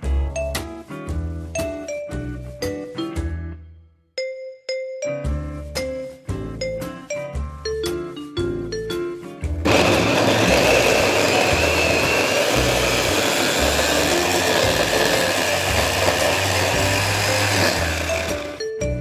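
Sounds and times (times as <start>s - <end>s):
electric food chopper whining: 9.7s - 18.6s.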